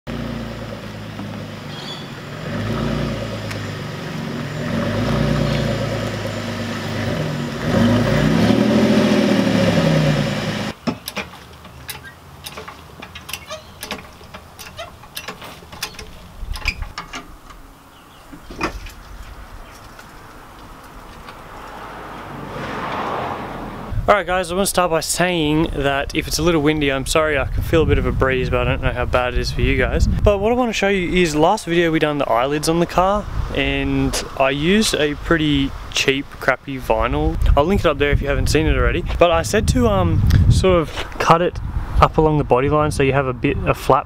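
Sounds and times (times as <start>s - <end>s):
car exhaust running: 0.1s - 10.8s
engine revving: 0.1s - 10.8s, 21.4s - 24.1s
metallic clicks of trolley jack: 10.9s - 17.6s.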